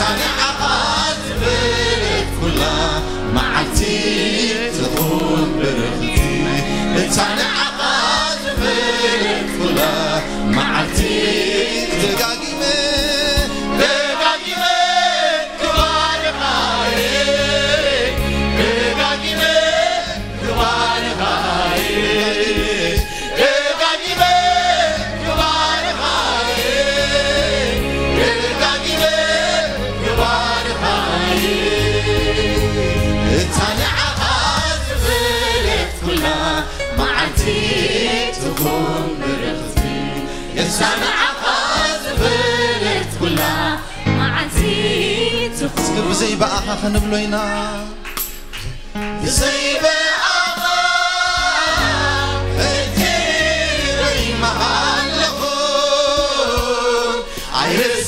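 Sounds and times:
choir singing: 0.0s - 48.0s, 49.1s - 58.0s
man singing lead: 2.2s - 7.7s, 9.4s - 13.9s, 32.2s - 34.9s, 45.4s - 48.0s
low bass line: 25.0s - 40.3s.

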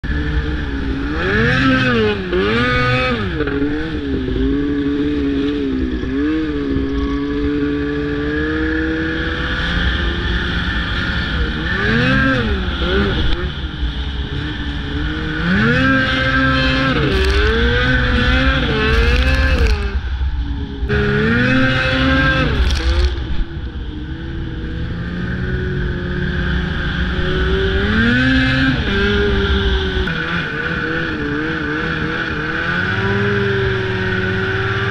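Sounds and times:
snowmobile engine revving: 0.1s - 20.0s, 20.7s - 34.9s
steady low rumble: 17.0s - 27.8s.

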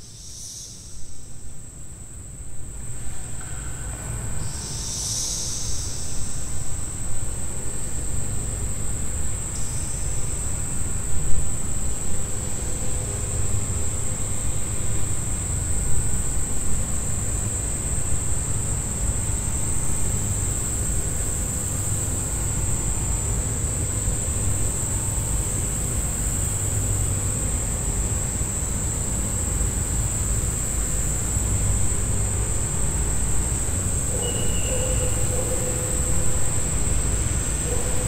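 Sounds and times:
insects trilling: 0.0s - 2.4s, 3.3s - 38.0s.

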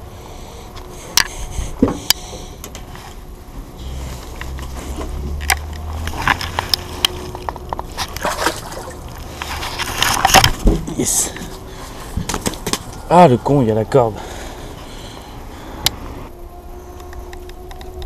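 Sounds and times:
fish splashing at water surface: 8.0s - 9.8s.

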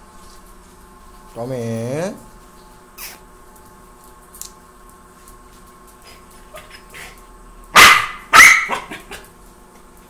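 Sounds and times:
puppy barking: 7.7s - 9.2s.

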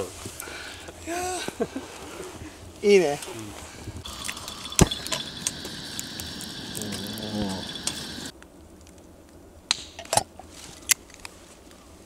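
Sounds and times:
gas lantern hissing: 4.0s - 8.3s.

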